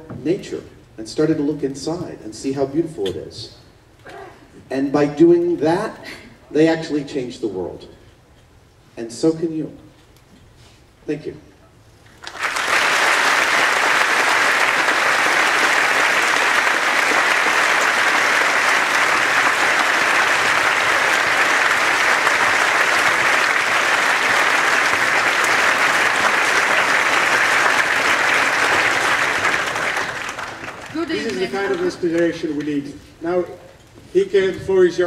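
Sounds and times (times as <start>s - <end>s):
large audience applauding: 12.2s - 32.6s.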